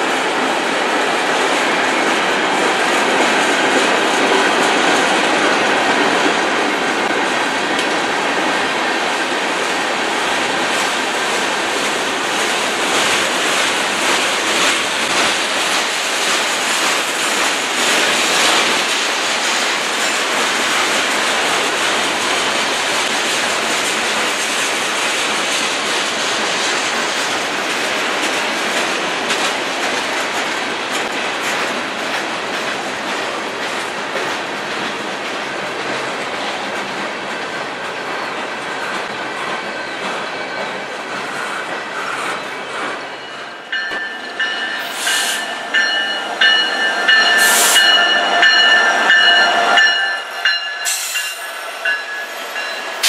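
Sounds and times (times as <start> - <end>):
freight train wheels clattering: 0.0 - 53.0.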